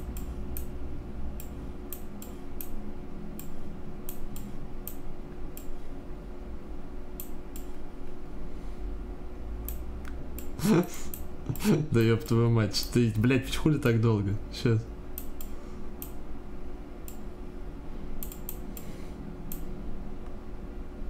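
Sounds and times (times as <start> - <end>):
low steady hum: 0.0 - 21.0
sharp clicking: 18.2 - 18.9.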